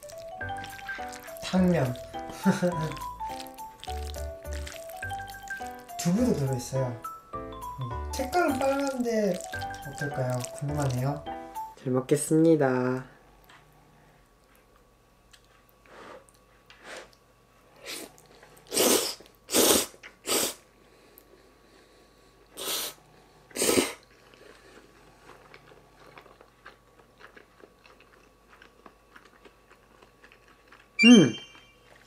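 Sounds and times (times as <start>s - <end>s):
chewing with mouth clicks: 0.0s - 6.7s, 8.2s - 11.7s, 23.5s - 32.0s
person slurping noodles: 18.7s - 20.6s, 22.6s - 24.0s.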